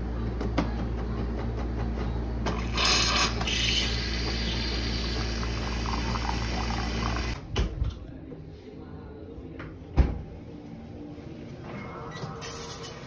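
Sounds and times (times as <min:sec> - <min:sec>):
electric machine humming: 0:02.5 - 0:07.4.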